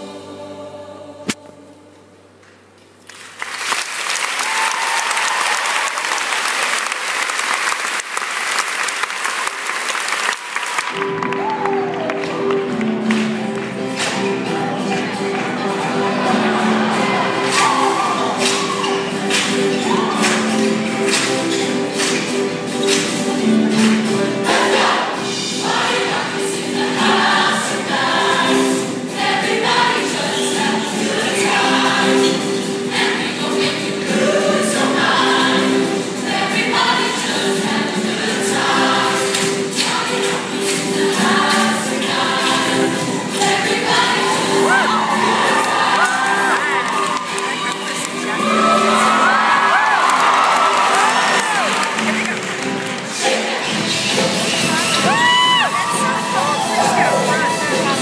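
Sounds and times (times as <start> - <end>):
group singing in chorus: 0.0 - 2.2, 13.0 - 47.2, 48.2 - 51.9, 52.9 - 55.2
song accompaniment music: 0.0 - 2.7, 10.0 - 58.0
audience applauding and cheering: 3.0 - 25.2, 42.8 - 58.0.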